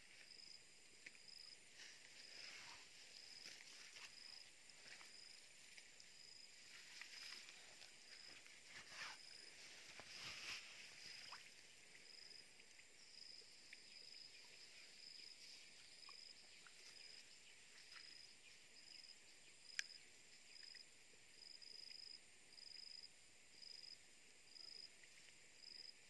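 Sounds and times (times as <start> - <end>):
small clicks and water ticks: 0.0 - 23.0, 24.6 - 25.9
insect chirping: 0.0 - 26.0
light splash: 1.9 - 12.8.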